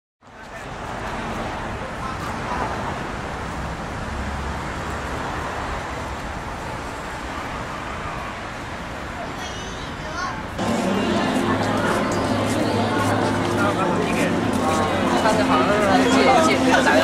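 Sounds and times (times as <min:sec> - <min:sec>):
road traffic noise: 0:00.2 - 0:17.0
faint voices: 0:09.0 - 0:17.0.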